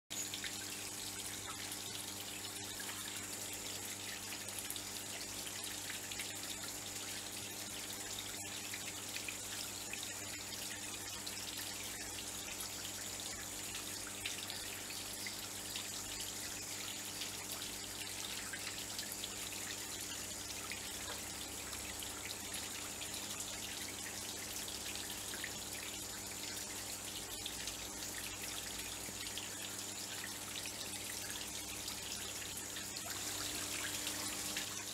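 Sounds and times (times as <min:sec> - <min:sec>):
waterfall trickling over rocks: 0:00.1 - 0:34.9.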